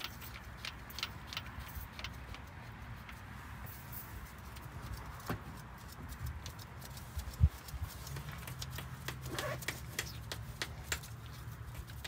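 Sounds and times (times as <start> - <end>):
light clicks and knocks: 8.0 - 12.0.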